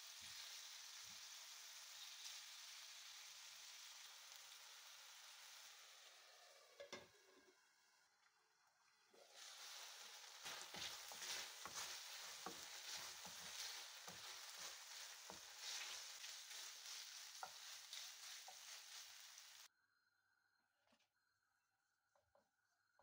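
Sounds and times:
chicken sizzling in a frying pan: 0:00.0 - 0:08.1, 0:08.7 - 0:19.7
wooden spatula scraping a pan: 0:09.2 - 0:19.7.

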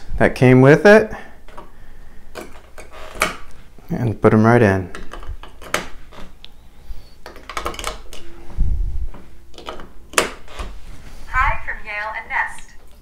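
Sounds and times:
steady electronic tone: 0:08.2 - 0:09.5.

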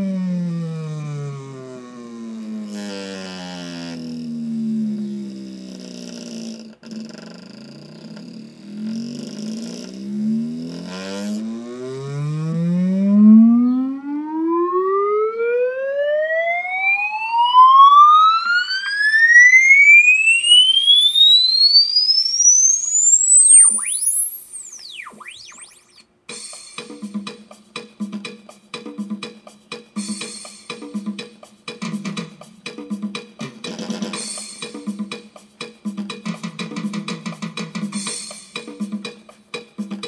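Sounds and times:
tone sweeping from bass to whistle: 0:00.0 - 0:02.0, 0:10.2 - 0:26.0
low buzzy test tones: 0:00.0 - 0:05.6, 0:08.1 - 0:14.9, 0:19.6 - 0:26.0.

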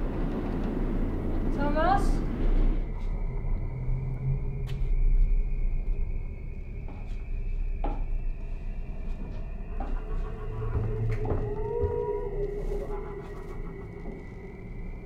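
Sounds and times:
faint high whine: 0:00.0 - 0:15.0
low steady rumble: 0:00.0 - 0:15.0
footsteps on wooden stairs: 0:08.9 - 0:14.4.

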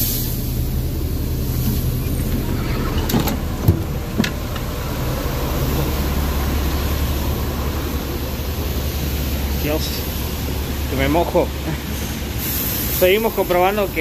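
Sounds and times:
bus diesel engine idling: 0:00.0 - 0:14.0
rain hiss: 0:04.4 - 0:14.0.

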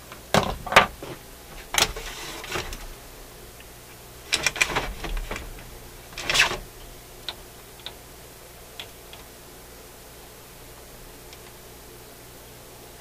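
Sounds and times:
turntable mechanism clattering: 0:00.3 - 0:08.0.

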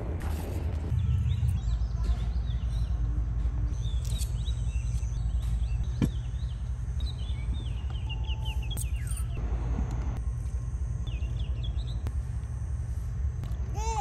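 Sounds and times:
steady low rumble: 0:00.0 - 0:13.8
small birds chirping: 0:03.7 - 0:09.4, 0:11.0 - 0:12.1.

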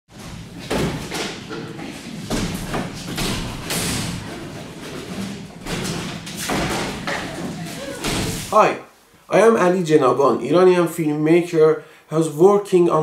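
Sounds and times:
heavy thumps and knocks: 0:00.1 - 0:08.5
background noise: 0:00.1 - 0:13.0.

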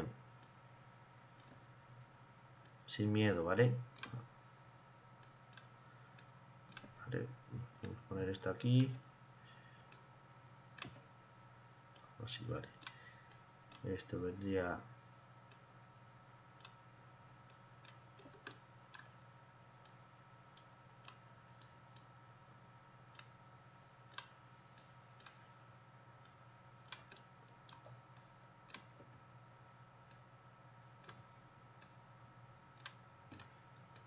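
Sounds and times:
low steady hum: 0:00.0 - 0:34.0
computer mouse clicks: 0:01.4 - 0:01.7, 0:03.9 - 0:04.2, 0:05.2 - 0:07.0, 0:09.9 - 0:11.1, 0:17.5 - 0:19.2, 0:24.1 - 0:25.5, 0:26.3 - 0:29.2, 0:31.0 - 0:32.0, 0:32.8 - 0:34.0.

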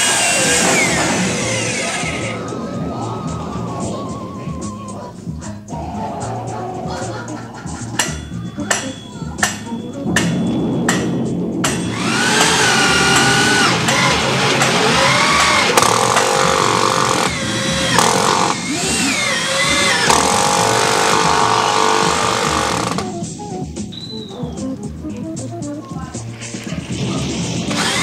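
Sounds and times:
electric drill boring into wood: 0:00.0 - 0:02.4, 0:11.9 - 0:23.1, 0:27.7 - 0:28.0.

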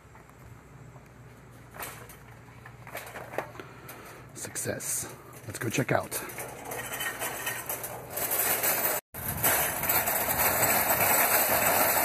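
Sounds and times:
metal shopping cart rattling: 0:04.9 - 0:12.0.

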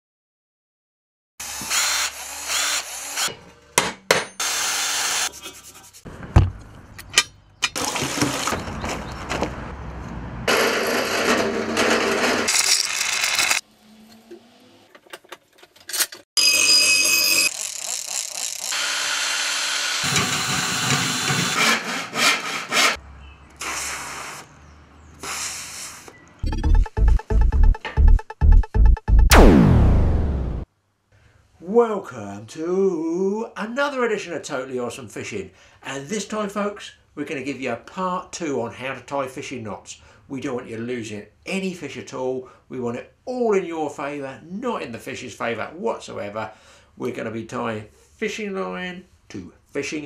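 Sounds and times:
handling and tool noises: 0:14.9 - 0:16.2.

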